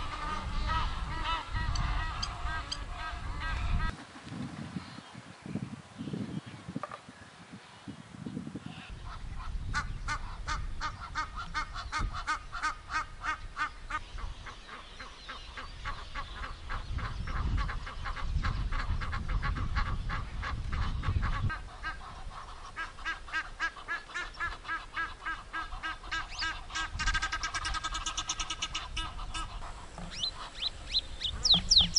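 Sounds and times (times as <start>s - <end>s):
geese honking: 0.0s - 4.0s, 20.8s - 31.9s.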